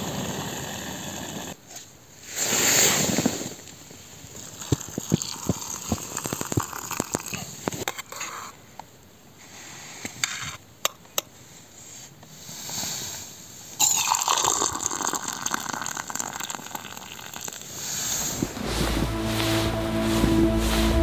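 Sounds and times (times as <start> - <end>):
water pouring into cup: 4.4 - 7.5, 13.8 - 17.8
music: 18.6 - 21.0.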